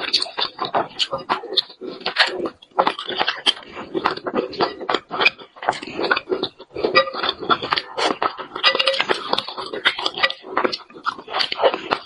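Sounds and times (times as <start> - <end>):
person chewing wet mouth clicks: 0.0 - 12.0.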